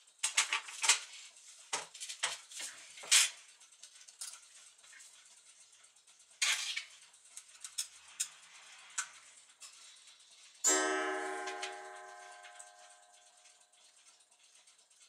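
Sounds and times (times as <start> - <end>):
clock hands clicking: 9.0 - 15.0
clock chime strike: 10.6 - 13.2.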